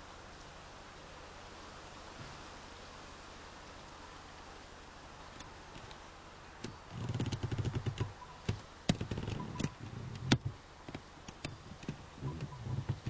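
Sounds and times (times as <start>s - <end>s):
tripod clicking and rattling: 6.7s - 10.5s.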